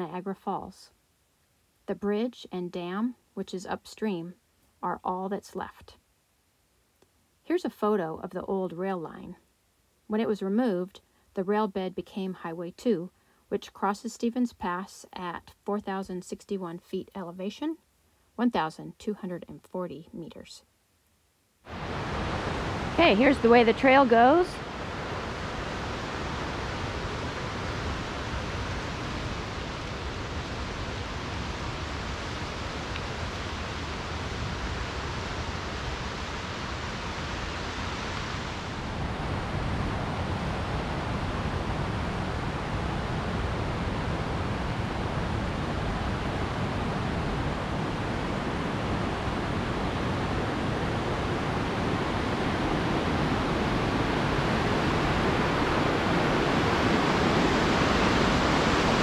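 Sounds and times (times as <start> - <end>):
river whitewater rushing: 21.7 - 59.0.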